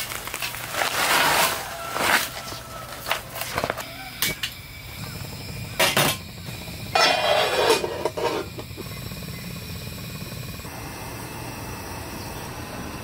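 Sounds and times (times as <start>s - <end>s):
steady low hum: 2.8s - 13.0s
lid scraping on pot: 5.6s - 9.0s
cookware clanking on metal grate: 7.0s - 8.6s.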